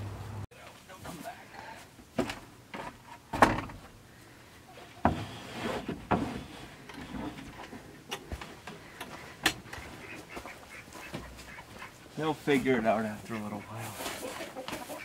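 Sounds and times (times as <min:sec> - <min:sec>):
wooden thuds: 0:02.1 - 0:04.0
wooden knocks and scrapes: 0:05.0 - 0:09.8
rustle: 0:09.7 - 0:15.0.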